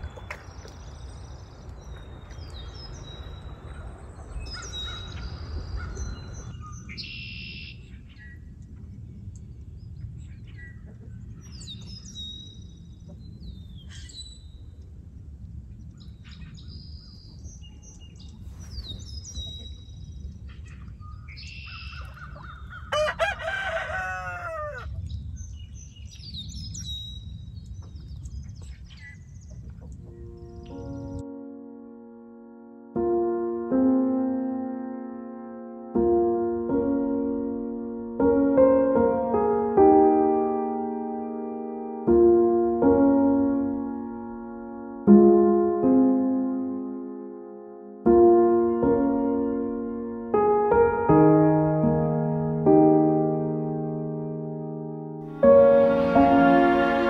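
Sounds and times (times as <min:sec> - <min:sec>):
water splashing: 0:00.0 - 0:06.4
small birds chirping: 0:00.0 - 0:14.8, 0:15.7 - 0:22.9, 0:25.0 - 0:31.2
rooster crowing: 0:22.8 - 0:24.9.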